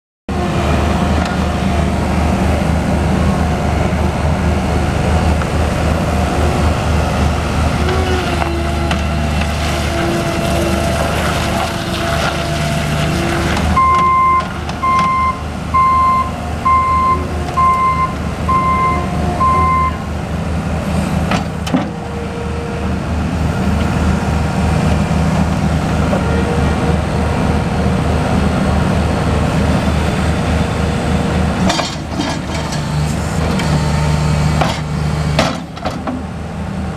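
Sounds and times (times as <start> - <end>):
diesel engine running: 0.3 - 36.9
backup alarm beeping: 13.8 - 20.0.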